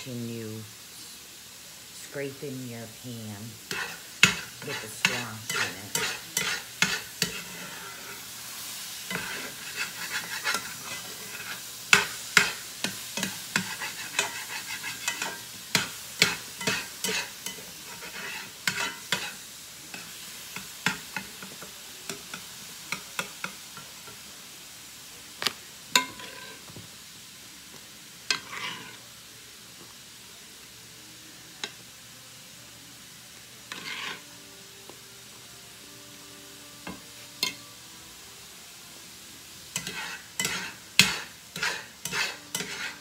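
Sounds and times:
vegetables sizzling: 0.0 - 43.0
utensil scraping a skillet: 2.0 - 24.2, 25.9 - 26.8, 28.2 - 29.1, 33.6 - 34.4, 39.7 - 43.0.

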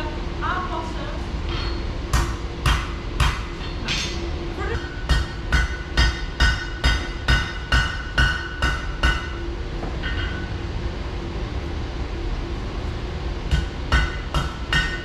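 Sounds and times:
steady low hum: 0.0 - 15.0
hammer striking iron on anvil: 1.5 - 9.4, 10.0 - 10.5, 13.5 - 15.0.

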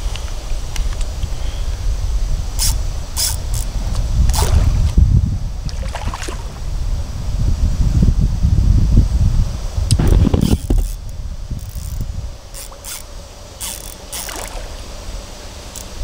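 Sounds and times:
wind rumble on microphone: 0.0 - 13.3
fish splashing in water: 14.0 - 15.0.

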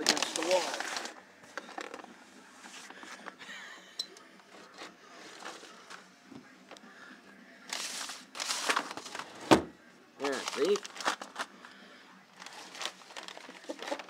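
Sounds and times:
household items rustling and scraping: 0.0 - 3.4, 4.5 - 6.0, 10.2 - 11.7.

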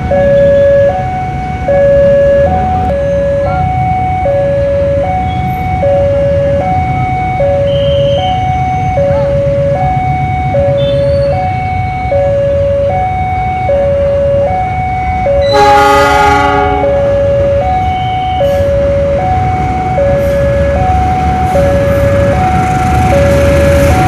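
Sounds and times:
two-tone crossing alarm chime: 0.0 - 24.0
locomotive horn blowing: 15.4 - 17.2.

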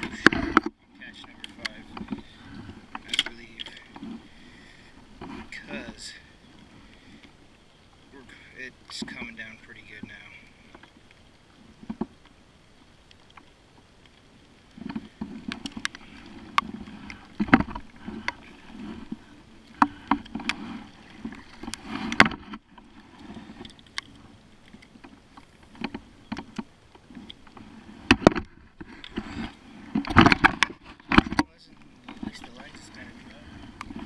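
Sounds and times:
paddle strokes splashing in water: 13.2 - 34.0.

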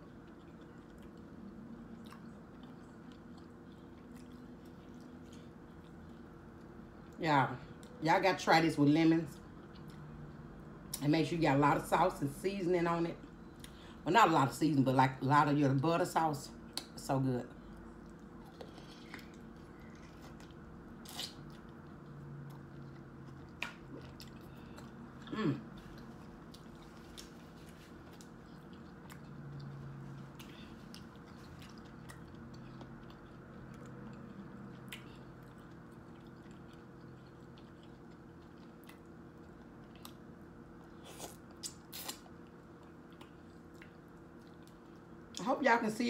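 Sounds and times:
chewing and biting seafood: 0.0 - 6.8, 17.6 - 45.4
steady low hum: 0.0 - 46.0.

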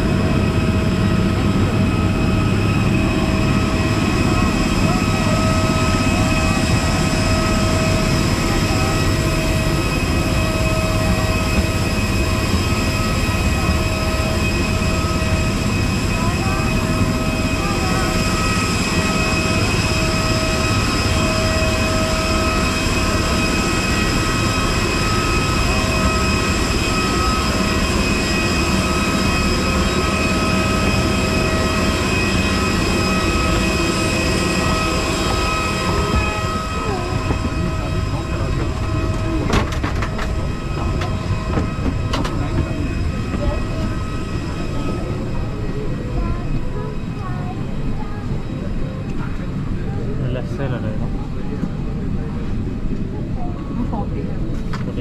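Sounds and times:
jet turbine whine: 0.0 - 55.0.

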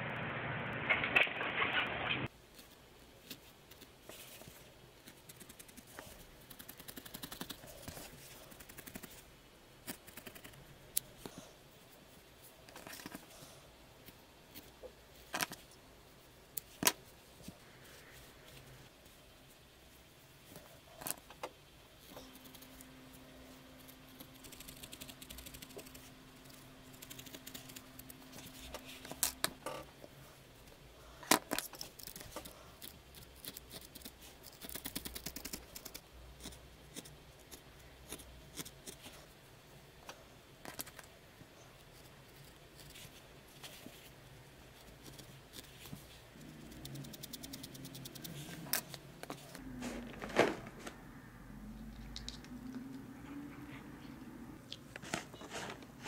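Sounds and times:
faint low hum: 0.0 - 56.0
felting needles poking wool: 2.5 - 9.2.

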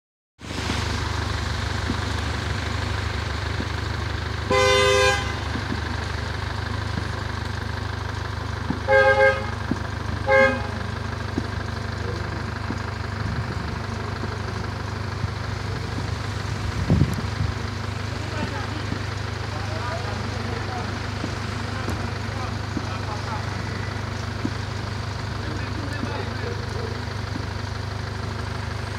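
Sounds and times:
steady low rumble: 0.4 - 28.9
car horn honking: 4.4 - 5.6, 8.8 - 11.0.

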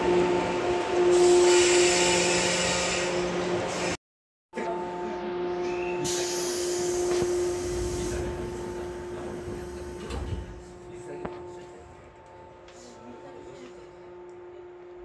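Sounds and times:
train hum: 0.0 - 4.0, 4.6 - 15.0
air hiss of train doors: 6.0 - 8.9.

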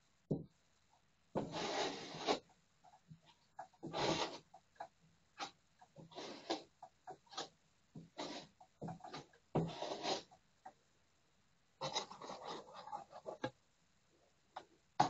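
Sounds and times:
putty knife scraping filler: 5.4 - 7.5, 8.1 - 10.3.

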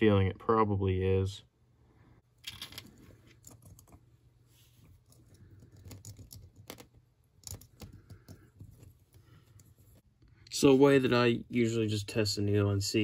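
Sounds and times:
small clicks and taps on metal parts: 5.1 - 9.7.

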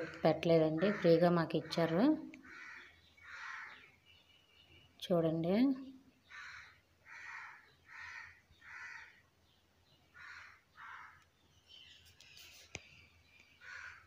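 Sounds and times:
crow cawing: 0.8 - 3.9, 6.3 - 9.2, 10.2 - 11.2, 13.6 - 14.0
light rustle: 11.8 - 13.5.

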